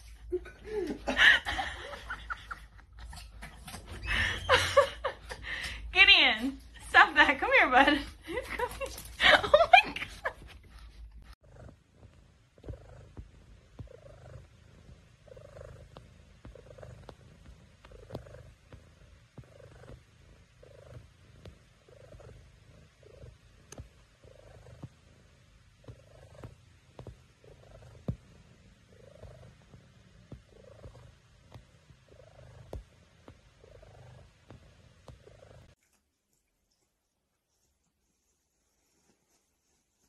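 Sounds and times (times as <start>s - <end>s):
cat purring: 6.9s - 35.8s.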